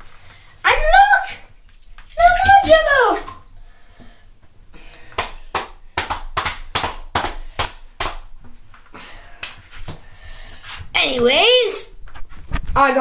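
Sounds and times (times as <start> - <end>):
sharp hand slaps: 5.1 - 8.3.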